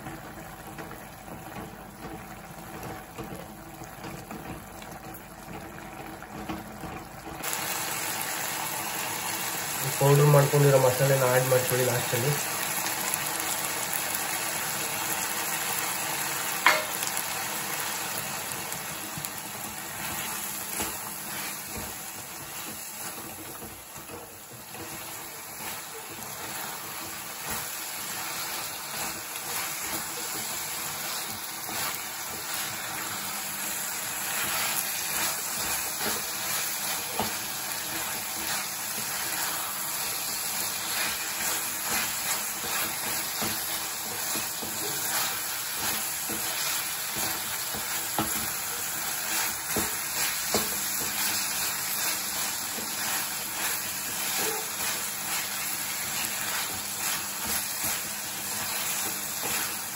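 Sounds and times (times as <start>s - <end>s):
chicken sizzling in a pan: 0.0s - 59.9s
wooden spatula scraping: 19.1s - 59.9s.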